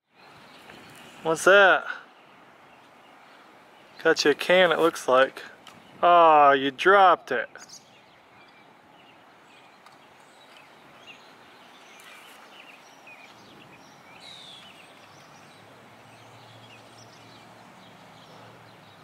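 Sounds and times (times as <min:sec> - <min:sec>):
bird chirps: 0:07.4 - 0:19.0.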